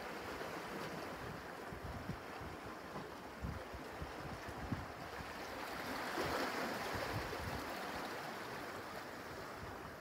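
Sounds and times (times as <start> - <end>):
wind buffeting microphone: 3.4 - 5.2.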